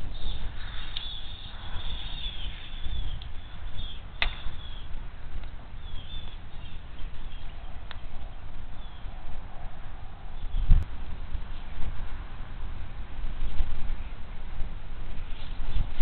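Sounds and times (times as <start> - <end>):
faint high bird calls: 0.0 - 5.0, 5.8 - 10.8
wind buffeting microphone: 0.0 - 16.0.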